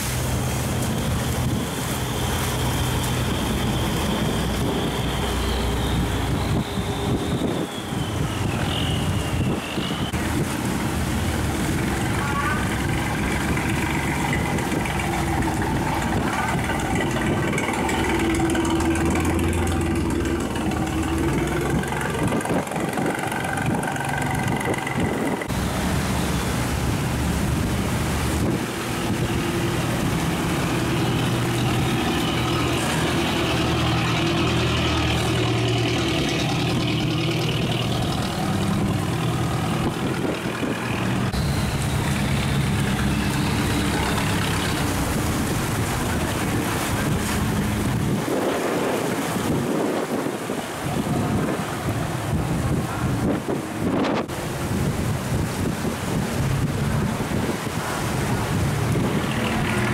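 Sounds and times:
barge engines running: 0.0 - 59.9.

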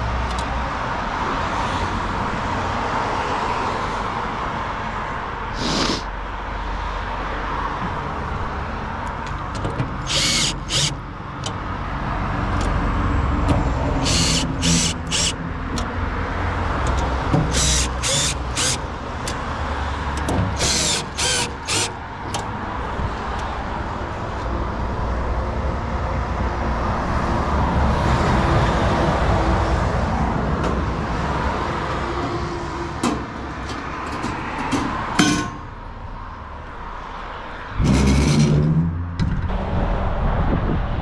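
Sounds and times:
cordless drill driving screws: 10.0 - 11.0, 14.0 - 15.4, 17.5 - 18.9, 20.6 - 22.0
loud metallic clatter: 37.8 - 39.5.

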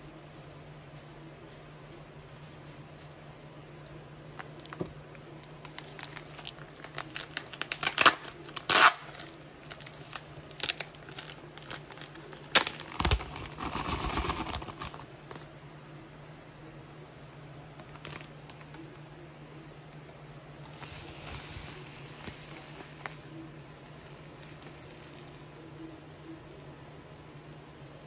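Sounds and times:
low steady hum: 0.0 - 28.0
plastic bag crinkling: 4.3 - 15.5, 17.8 - 18.8, 20.6 - 25.7.

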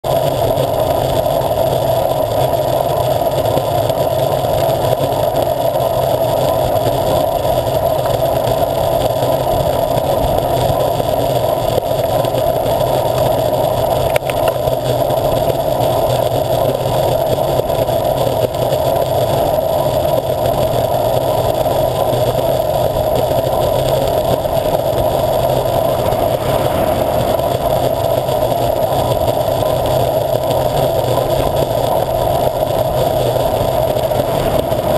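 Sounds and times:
bicycle tyre noise on tarmac: 0.0 - 34.9
wind on microphone: 20.3 - 34.9.

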